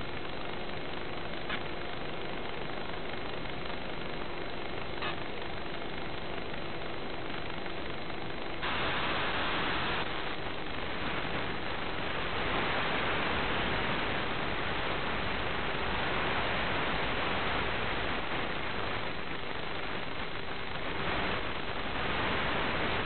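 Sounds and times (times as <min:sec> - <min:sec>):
static hiss: 0:00.0 - 0:23.0.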